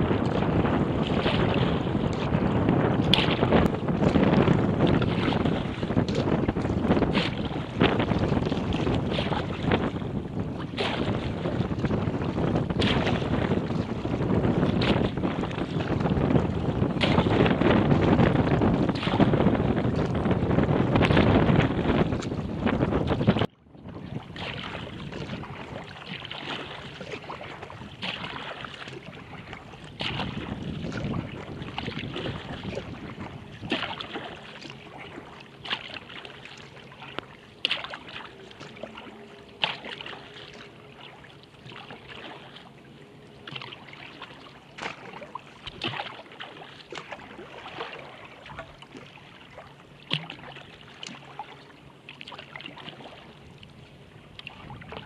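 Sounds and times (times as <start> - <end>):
paddle splashing: 0.0 - 55.0
water lapping along kayak hull: 0.0 - 55.0.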